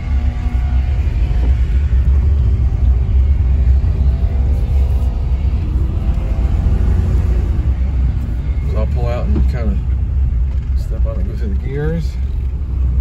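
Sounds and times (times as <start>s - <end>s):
car engine running: 0.0s - 13.0s
road rumble: 0.0s - 13.0s.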